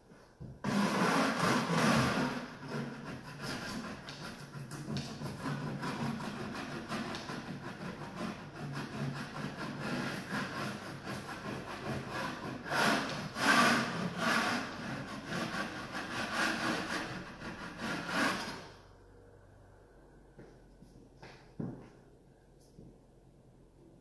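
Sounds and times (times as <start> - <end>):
putty knife scraping drywall: 0.6 - 18.8.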